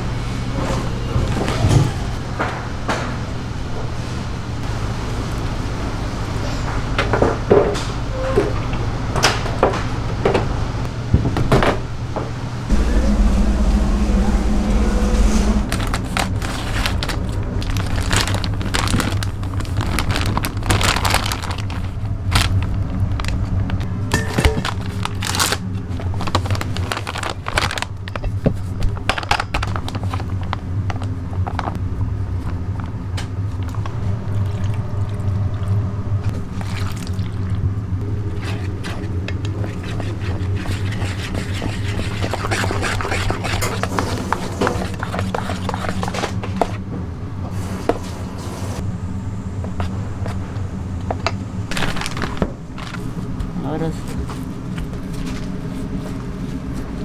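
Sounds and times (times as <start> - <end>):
low equipment hum: 12.6 - 57.0
steady tone: 12.7 - 16.8
utensils and containers clattering: 24.1 - 25.1.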